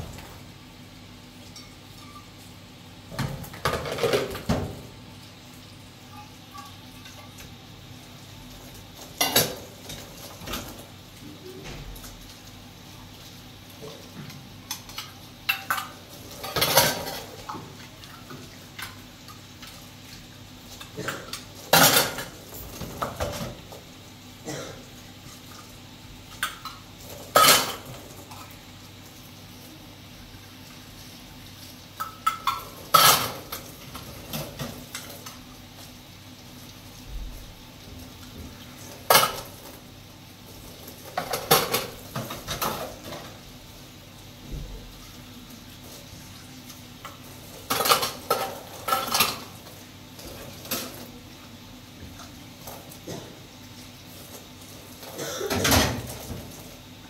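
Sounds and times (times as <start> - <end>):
pots and pans clattering: 3.1 - 5.0, 9.0 - 10.9, 13.8 - 19.0, 20.7 - 23.8, 26.3 - 28.5, 32.0 - 35.4, 38.5 - 39.8, 40.7 - 43.4, 47.0 - 51.1, 54.3 - 56.8.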